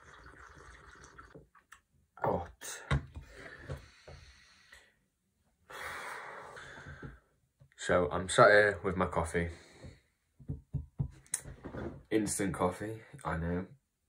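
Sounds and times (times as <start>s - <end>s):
man breathing out and gasping: 5.7s - 7.3s.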